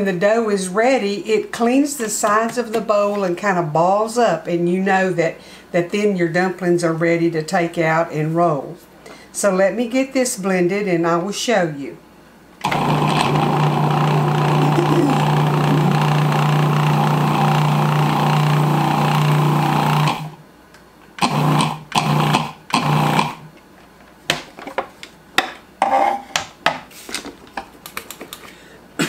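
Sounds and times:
food processor motor running: 12.6s - 20.4s, 21.2s - 23.4s.

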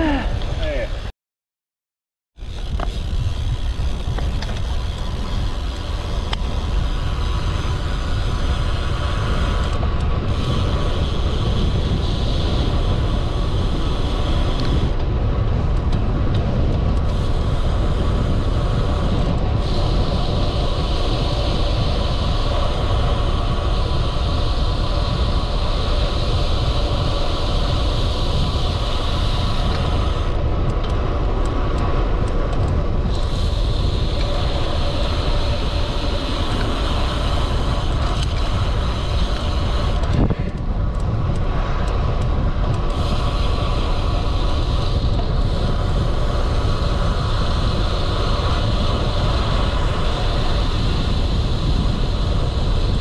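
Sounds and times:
road and tyre hiss: 2.4s - 53.0s
wind buffeting microphone: 2.4s - 53.0s.

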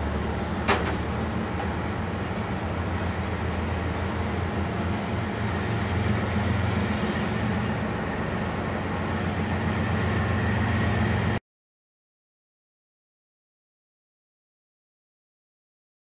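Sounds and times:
diesel locomotive engines rumbling: 0.0s - 11.4s
freight cars rolling on rails: 0.0s - 11.4s
faint high squeal: 0.4s - 0.8s.

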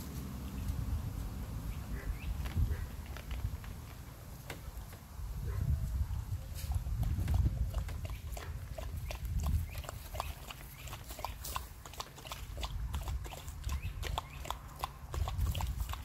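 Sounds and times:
dogs licking and chewing food: 6.5s - 16.0s.

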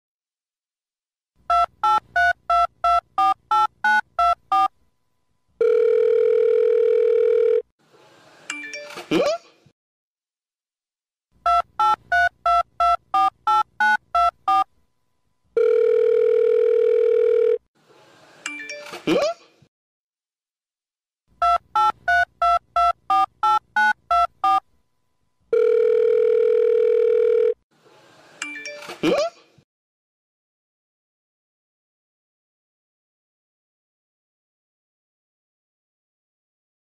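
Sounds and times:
steady phone tone: 5.6s - 7.7s, 15.6s - 17.7s, 25.5s - 27.6s.

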